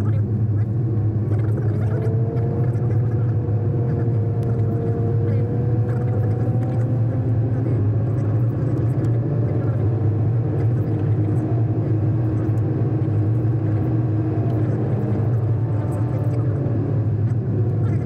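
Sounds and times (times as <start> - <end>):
car engine and tyre hum: 0.0 - 18.0.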